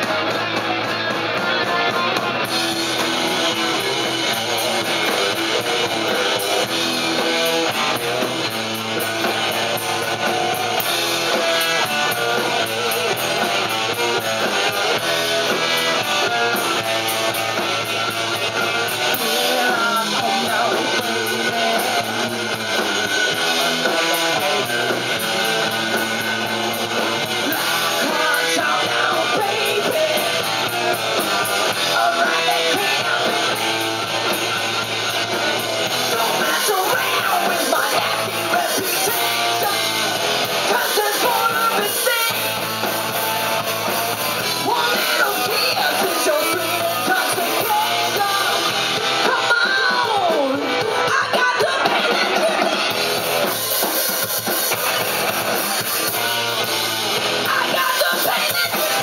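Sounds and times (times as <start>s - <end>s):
live rock band playing: 0.0s - 59.0s
person singing: 19.0s - 26.7s, 27.3s - 33.9s, 35.8s - 42.8s, 44.4s - 53.0s, 57.4s - 59.0s.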